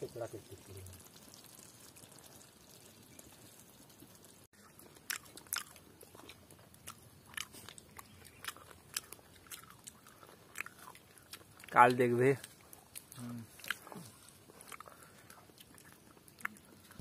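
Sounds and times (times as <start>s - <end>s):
person chewing crunchy food: 4.6s - 17.0s.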